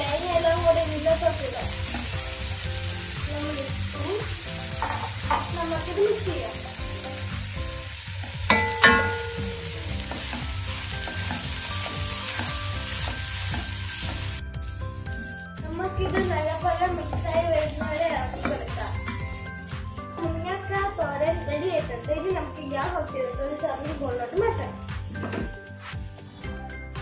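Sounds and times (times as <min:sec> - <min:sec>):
vegetables sizzling: 0:00.0 - 0:26.0
faint background music: 0:00.0 - 0:27.0
wooden spatula scraping frying pan: 0:09.9 - 0:20.3.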